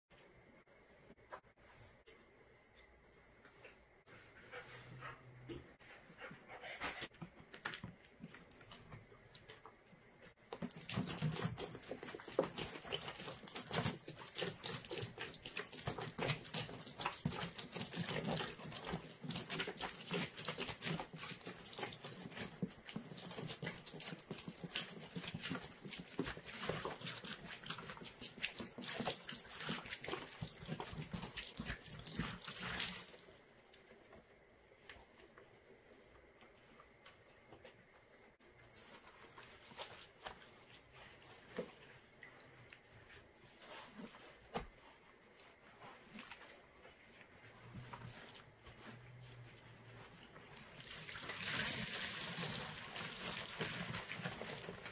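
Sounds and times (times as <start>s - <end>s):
liquid pouring from plastic jug: 50.8s - 54.9s.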